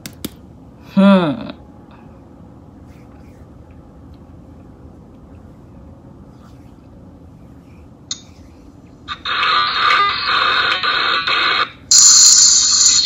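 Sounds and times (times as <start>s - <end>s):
harsh hissing noise: 9.1s - 13.0s.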